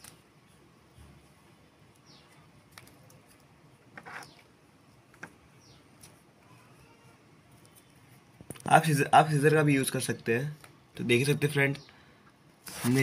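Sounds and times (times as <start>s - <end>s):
small paper clicks: 1.9s - 4.5s
paper rustle: 12.6s - 13.0s.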